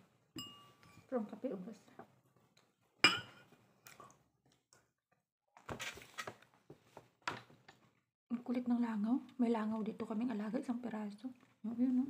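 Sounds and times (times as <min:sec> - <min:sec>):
ceramic tableware clinking: 0:00.4 - 0:01.0, 0:03.0 - 0:03.5.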